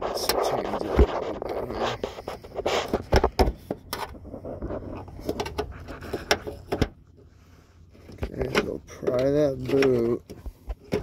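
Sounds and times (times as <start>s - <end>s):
screwdriver scraping rubber: 0.0s - 3.4s
sharp clicks and knocks: 0.2s - 7.0s, 8.0s - 11.0s.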